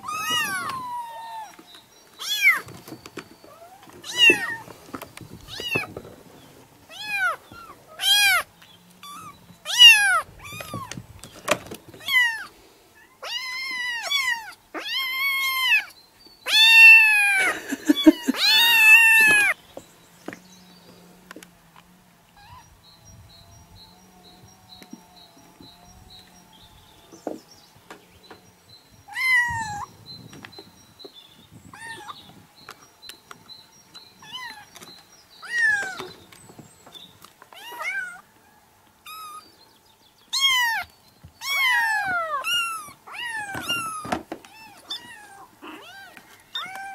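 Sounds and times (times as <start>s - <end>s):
kittens meowing: 0.0s - 1.6s, 2.2s - 2.7s, 3.4s - 4.7s, 5.4s - 6.0s, 6.9s - 11.0s, 12.0s - 19.6s, 22.3s - 22.7s, 29.1s - 29.9s, 31.7s - 32.4s, 34.2s - 34.8s, 35.4s - 36.2s, 37.5s - 38.2s, 39.1s - 39.5s, 40.3s - 46.9s.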